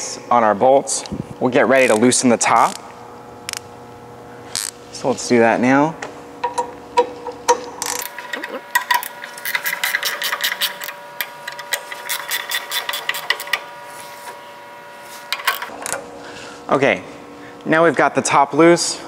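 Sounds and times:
wrench clicking on bolts: 7.5s - 13.6s.

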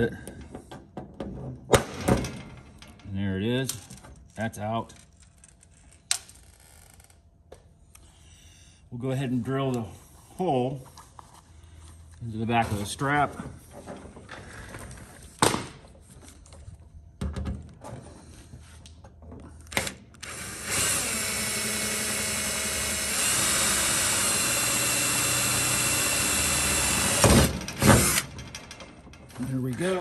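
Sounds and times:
cordless drill drilling metal: 20.2s - 28.4s.

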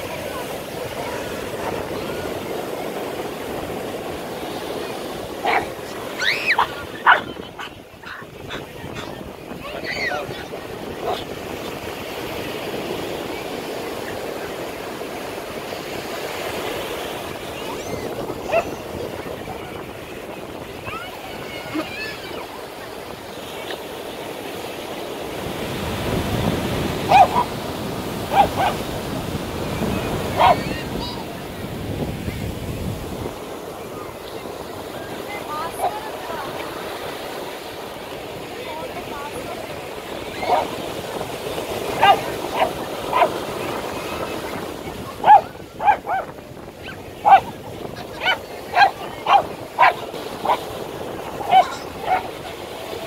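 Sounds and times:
ocean surf washing ashore: 0.0s - 53.0s
dog barking: 5.4s - 5.8s, 6.5s - 9.1s, 11.0s - 11.3s, 18.5s - 18.8s, 27.0s - 27.5s, 28.3s - 28.8s, 30.4s - 30.7s, 40.4s - 40.7s, 42.0s - 43.4s, 45.2s - 47.5s, 48.2s - 50.6s, 51.4s - 52.3s.

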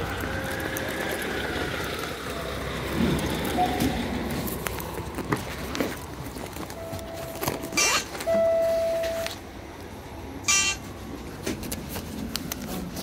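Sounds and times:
low rumble of streetcar: 0.0s - 13.0s.

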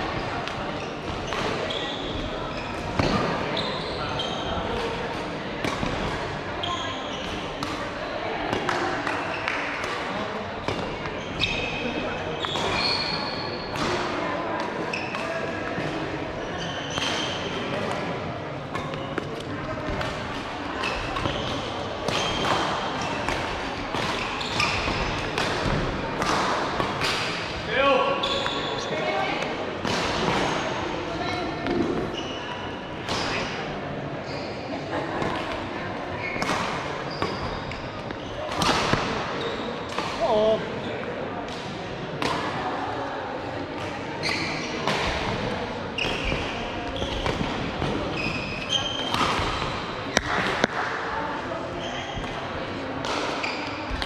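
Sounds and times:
shoes squeaking on court floor: 0.5s - 5.0s, 6.6s - 7.6s, 10.6s - 13.8s, 14.6s - 18.0s, 18.7s - 26.4s, 27.7s - 41.1s, 44.2s - 45.0s, 46.0s - 50.6s, 51.7s - 52.3s, 53.2s - 54.0s.

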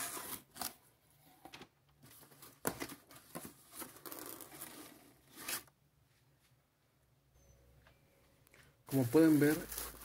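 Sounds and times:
plastic bags crinkling: 8.9s - 10.0s.

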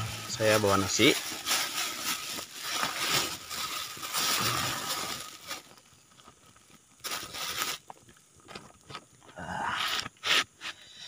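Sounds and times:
rice pouring out: 0.0s - 5.8s
plastic bag crinkling: 0.0s - 8.9s.

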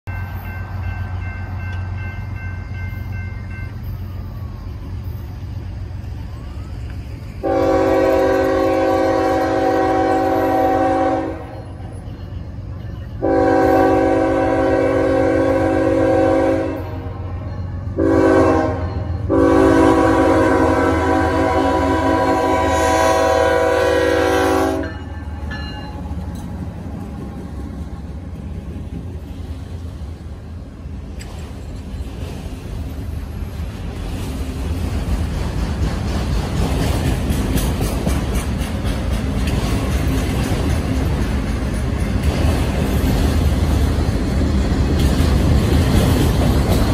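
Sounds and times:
train rumbling: 0.0s - 46.9s
locomotive air horn blasts: 7.4s - 11.6s, 13.2s - 25.1s.

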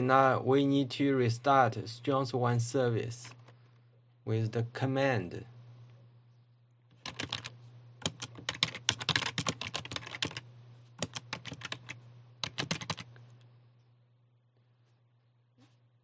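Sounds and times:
keyboard typing: 6.9s - 10.4s, 11.0s - 13.3s.

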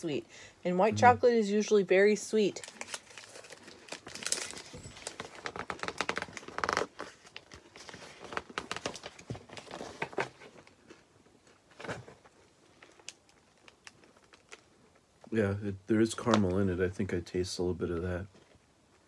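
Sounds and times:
chewing crunchy chocolate bar: 12.8s - 15.0s.

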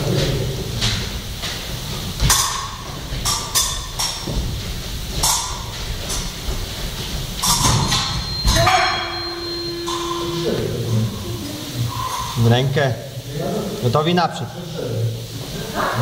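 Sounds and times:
footwork thuds: 0.0s - 9.3s
fencing blades clashing: 0.1s - 12.4s.

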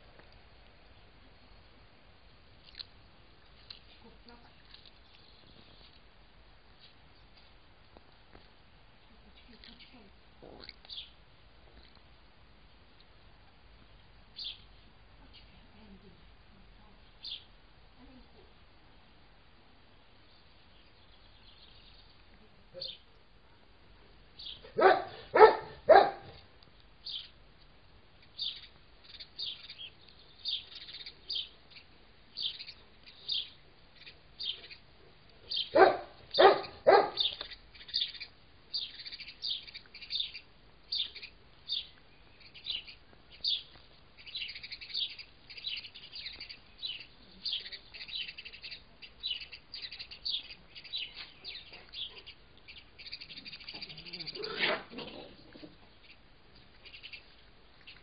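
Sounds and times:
small birds chirping: 2.4s - 12.1s, 12.7s - 19.2s, 19.8s - 58.0s
dog barking: 24.7s - 26.4s, 35.7s - 37.4s.

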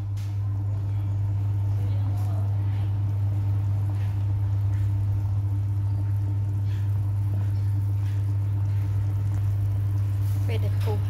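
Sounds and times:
loud steady low hum: 0.0s - 11.0s
soup boiling in a pot: 0.0s - 11.0s.

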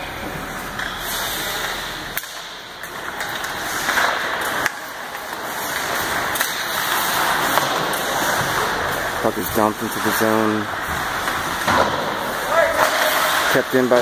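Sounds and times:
skates hissing on ice: 1.0s - 1.9s.

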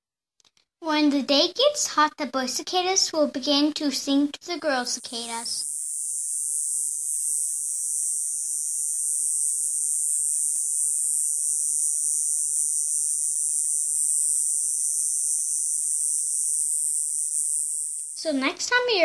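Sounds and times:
cicada buzzing: 4.4s - 19.0s.

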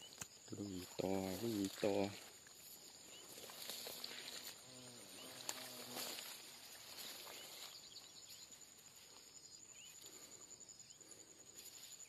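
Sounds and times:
faint bird chirps: 0.0s - 2.1s, 6.7s - 12.0s
high insect whine: 0.0s - 12.0s.

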